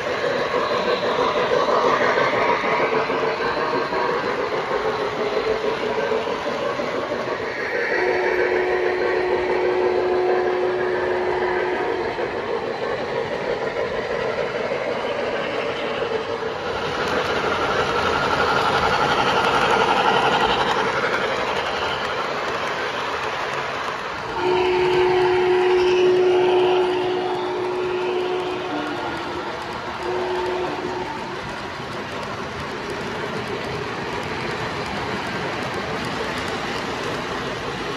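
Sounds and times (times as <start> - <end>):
model trains rumbling on track: 0.0 - 37.9
model train steam whistle: 7.9 - 12.8, 24.3 - 31.3.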